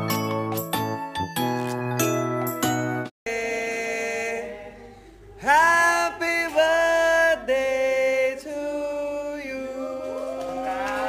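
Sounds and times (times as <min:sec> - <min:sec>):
person singing slow melody: 0:03.3 - 0:11.0.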